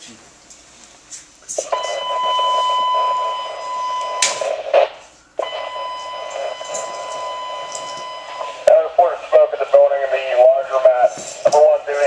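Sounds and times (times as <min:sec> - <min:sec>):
radio hiss: 0:01.5 - 0:12.0
steady high alert tone: 0:05.4 - 0:12.0
radio click: 0:11.4 - 0:11.9.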